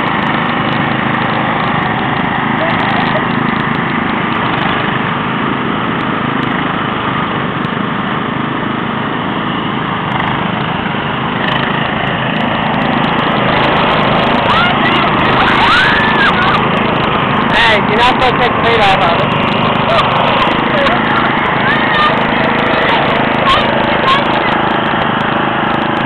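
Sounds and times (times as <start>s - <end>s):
lawn tractor engines running: 0.0s - 26.0s
rising and falling calls: 13.2s - 17.5s.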